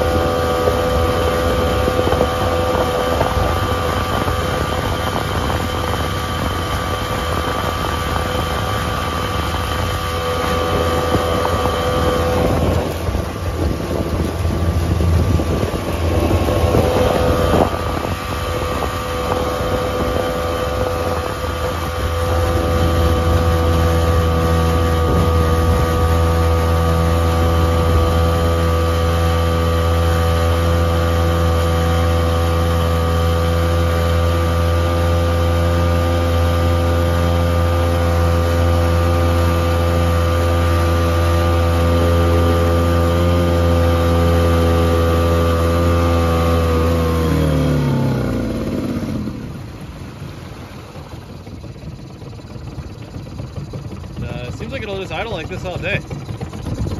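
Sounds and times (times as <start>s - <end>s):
outboard motor running: 0.0s - 56.9s.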